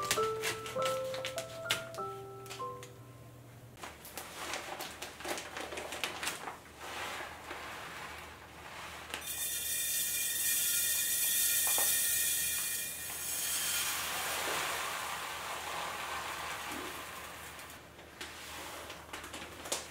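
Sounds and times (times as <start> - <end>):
plastic bag crinkling: 0.0 - 2.1, 3.8 - 7.8
rice pouring into glass jar: 8.7 - 17.8.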